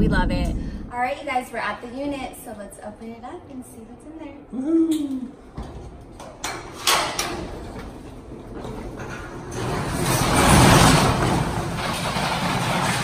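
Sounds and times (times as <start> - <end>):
metal roll-up door rattling: 6.3 - 13.0.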